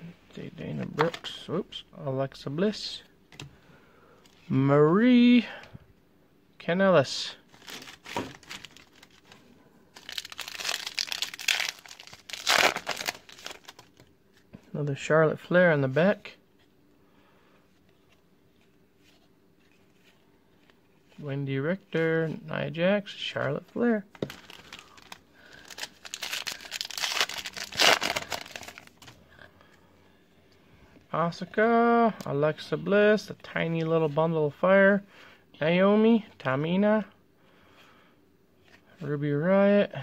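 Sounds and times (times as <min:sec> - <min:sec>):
foil wrapper crinkling and tearing: 0:07.5 - 0:14.0, 0:24.2 - 0:29.1.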